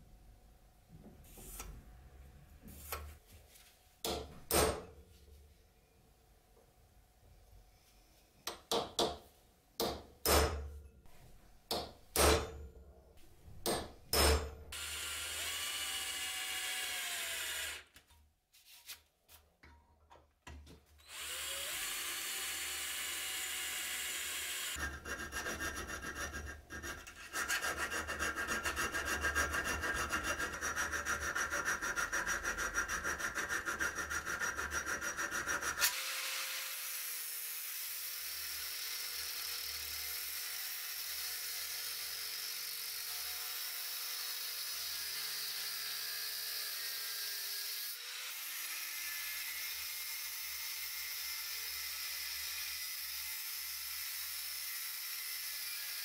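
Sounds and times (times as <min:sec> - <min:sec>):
hammer striking centre punch: 0:11.7 - 0:12.6, 0:13.6 - 0:14.6
electric drill boring into steel: 0:14.8 - 0:17.9, 0:21.0 - 0:24.8.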